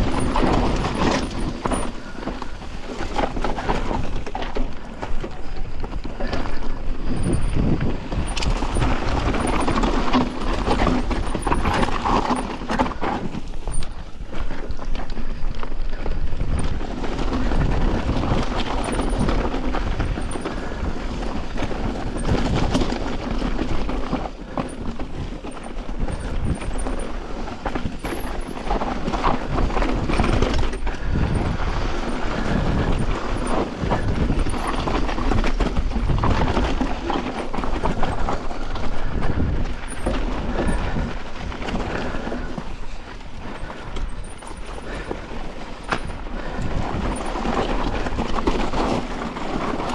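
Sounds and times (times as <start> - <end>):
bike rattling and knocking: 0.0 - 49.9
tyres crunching over gravel: 0.0 - 49.9
wind rumbling on microphone: 0.0 - 49.9.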